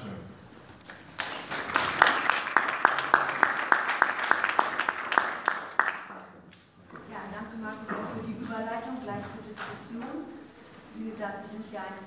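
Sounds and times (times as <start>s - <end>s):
audience applauding: 0.9s - 6.2s.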